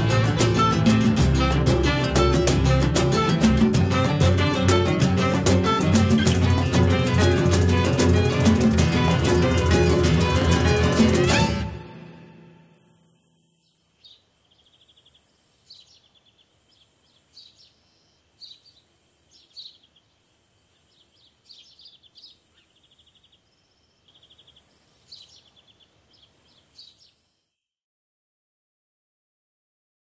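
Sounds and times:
faint background noise: 0:12.6 - 0:27.6
birds chirping in trills: 0:12.7 - 0:27.5.

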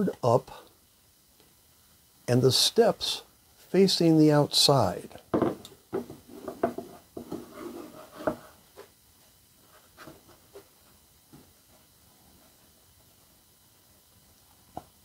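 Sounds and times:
wooden board knocks: 0:05.3 - 0:07.4
board scraping on tabletop: 0:06.0 - 0:08.9.

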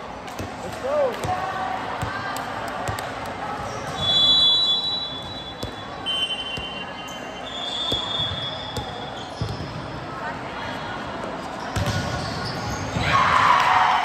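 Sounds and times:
voices in a hall: 0:00.0 - 0:14.0
balls being hit and bounced: 0:00.2 - 0:04.4, 0:05.2 - 0:06.9, 0:07.8 - 0:10.1, 0:11.2 - 0:13.3
high whistle-like tones: 0:04.0 - 0:09.1.

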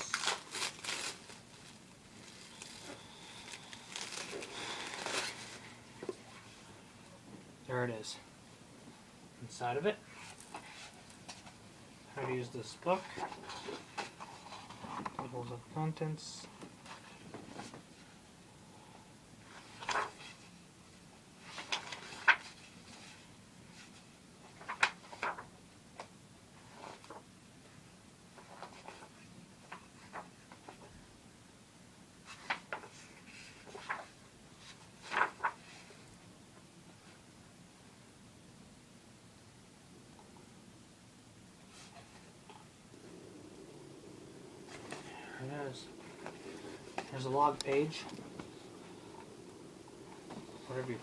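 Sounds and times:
pages turning: 0:00.0 - 0:05.7, 0:24.5 - 0:25.5, 0:32.3 - 0:36.0, 0:44.7 - 0:49.3
wrapping crinkling and rustling: 0:00.0 - 0:05.8.

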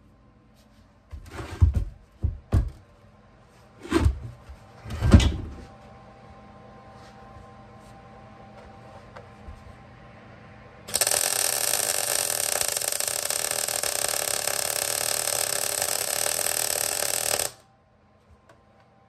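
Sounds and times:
arc welding crackle: 0:10.9 - 0:17.6.

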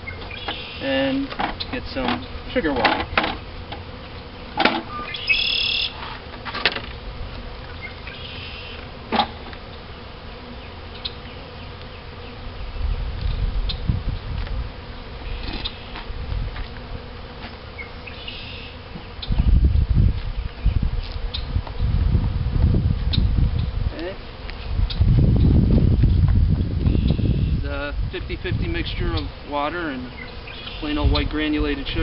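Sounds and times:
bees buzzing: 0:00.0 - 0:32.0.

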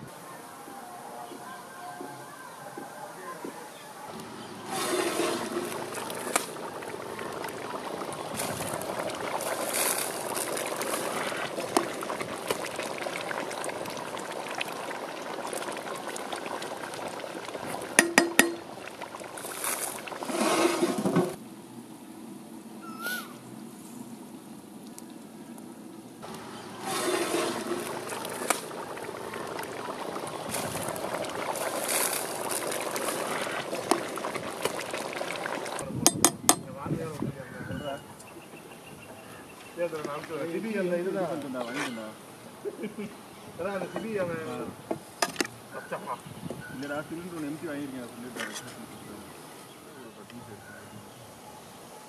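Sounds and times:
gravy bubbling in pot: 0:04.1 - 0:21.4, 0:26.2 - 0:36.6, 0:39.7 - 0:41.7.

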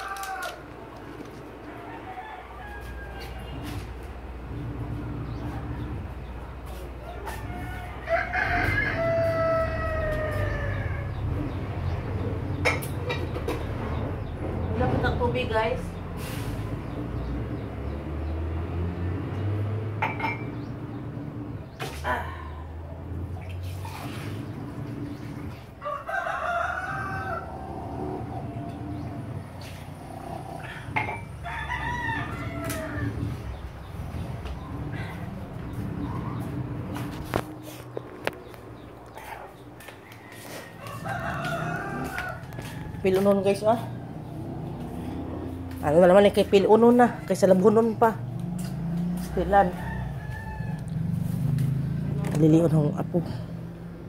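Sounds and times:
rooster crowing: 0:00.0 - 0:00.8, 0:01.6 - 0:03.8, 0:07.0 - 0:11.6, 0:25.8 - 0:28.6, 0:30.6 - 0:33.6, 0:39.8 - 0:43.2, 0:48.8 - 0:51.4.

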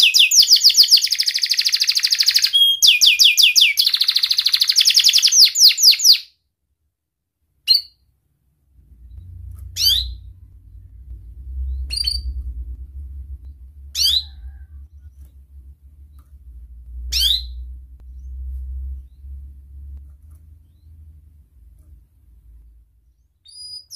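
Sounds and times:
canary chirping: 0:00.0 - 0:06.4, 0:07.6 - 0:08.1, 0:09.0 - 0:12.6, 0:13.9 - 0:15.4, 0:16.0 - 0:19.5, 0:20.4 - 0:21.2, 0:22.5 - 0:23.9
low steady rumble: 0:08.1 - 0:23.9.

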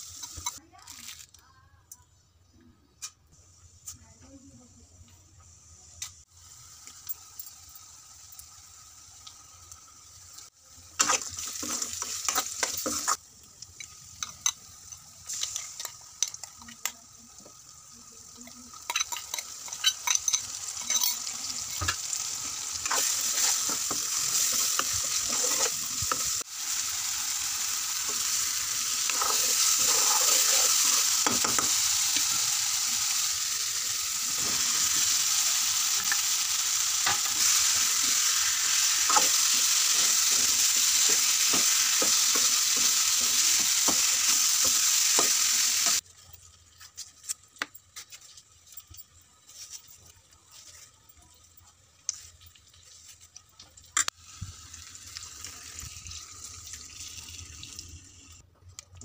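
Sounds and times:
paste sizzling in hot oil: 0:00.0 - 0:01.2, 0:05.8 - 0:58.4
spatula scraping a metal pan: 0:22.8 - 0:26.3, 0:29.1 - 0:31.7.

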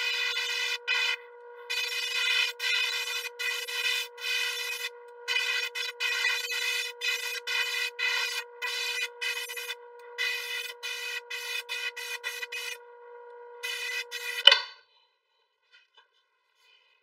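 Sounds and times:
airbrush spraying: 0:00.0 - 0:12.8, 0:13.6 - 0:14.4
steady hum: 0:00.0 - 0:14.7.

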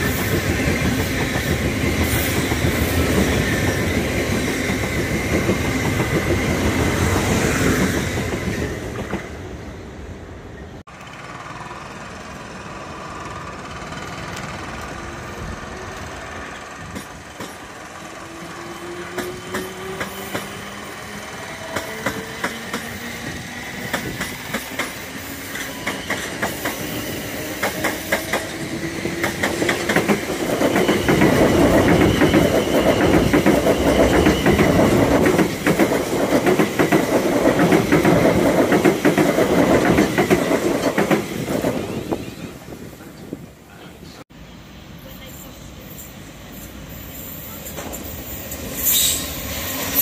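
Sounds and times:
train wheels rumbling and clattering: 0:00.0 - 0:09.6, 0:10.8 - 0:44.2.

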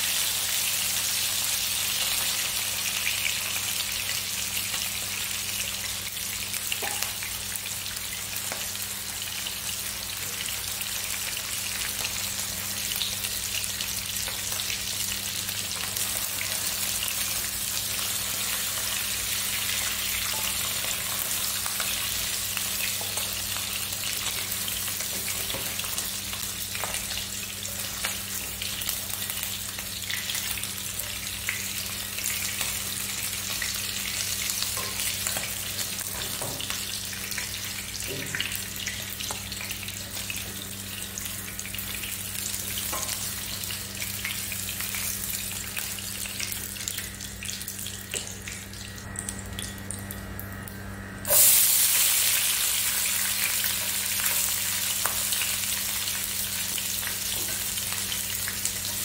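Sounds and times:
fish sizzling in hot oil: 0:00.0 - 0:49.4, 0:51.3 - 0:59.0
low steady hum: 0:03.8 - 0:59.0.

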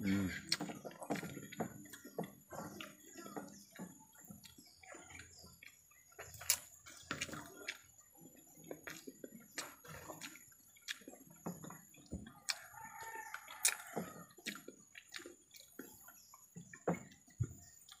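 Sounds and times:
rooster crowing: 0:12.5 - 0:14.3.

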